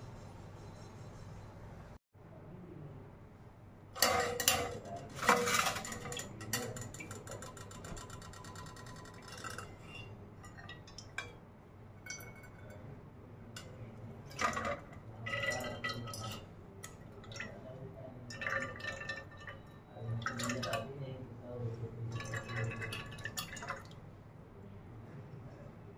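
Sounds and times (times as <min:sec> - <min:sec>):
steel ladle clinking in pan: 0:04.0 - 0:11.4, 0:12.0 - 0:13.0
liquid pouring and dripping: 0:13.6 - 0:24.1.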